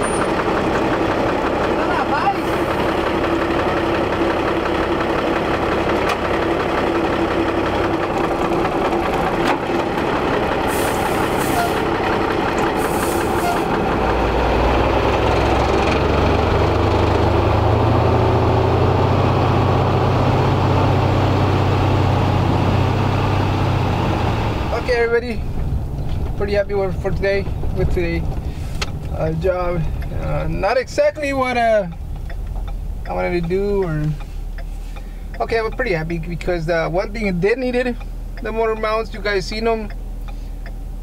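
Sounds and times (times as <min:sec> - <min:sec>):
truck engine idling: 0:00.0 - 0:41.0
deep low rumble: 0:24.0 - 0:34.6.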